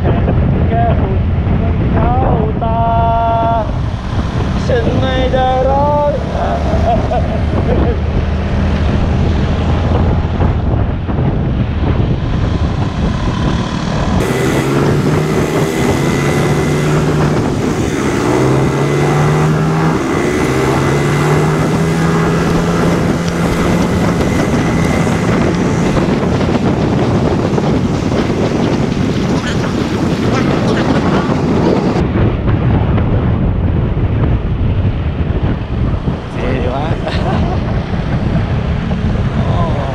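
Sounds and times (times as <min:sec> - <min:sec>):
wind rushing on microphone: 0:00.0 - 0:39.9
scooter engine humming: 0:00.5 - 0:32.0, 0:35.6 - 0:39.9.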